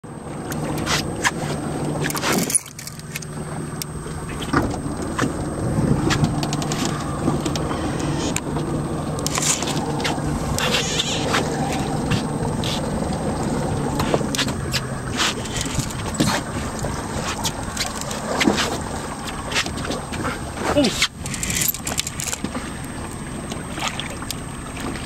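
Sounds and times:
boat engine running: 0.0s - 25.0s
sharp clicks and knocks: 6.0s - 12.9s.

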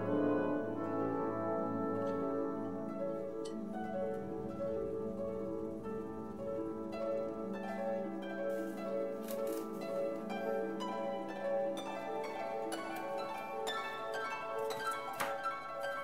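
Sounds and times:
plucked string notes: 0.0s - 16.0s.

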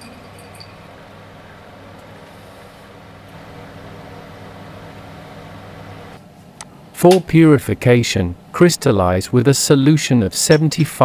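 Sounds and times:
vacuum pump humming: 0.0s - 8.6s.

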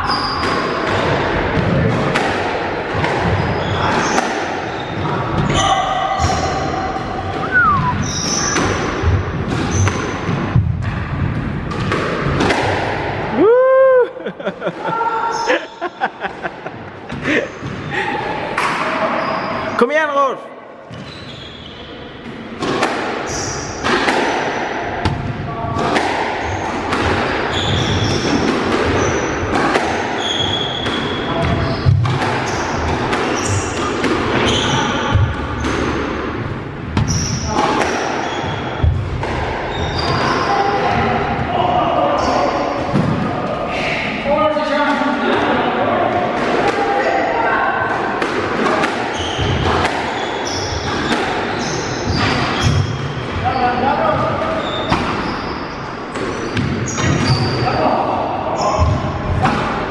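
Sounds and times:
squash ball striking rackets and walls: 0.0s - 13.4s, 18.5s - 19.2s, 22.1s - 41.6s, 42.2s - 43.6s, 44.9s - 57.7s, 58.6s - 59.9s
shoes squeaking on wooden floor: 20.9s - 22.0s, 27.5s - 28.4s.

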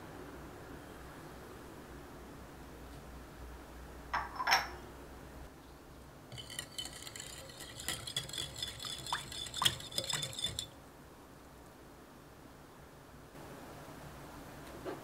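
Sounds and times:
whisk clinking against glass bowl: 6.3s - 10.8s.

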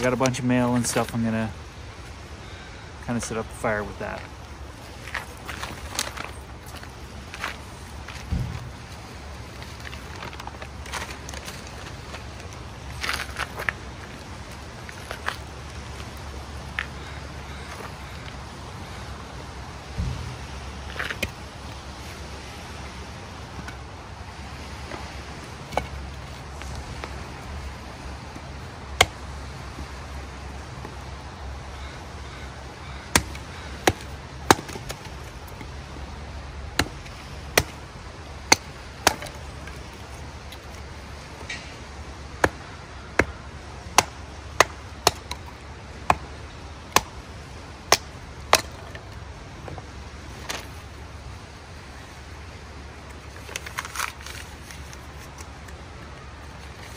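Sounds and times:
wood being split: 33.1s - 35.7s, 36.7s - 37.8s, 38.4s - 40.8s, 42.4s - 46.3s, 47.8s - 49.1s.

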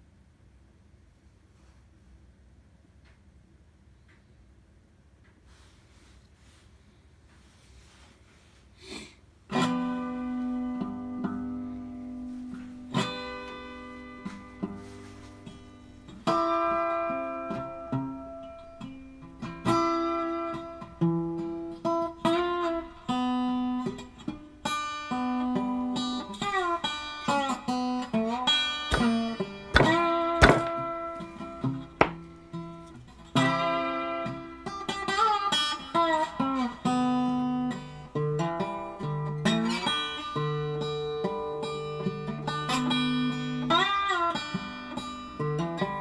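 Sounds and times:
solo acoustic guitar: 9.5s - 46.0s.

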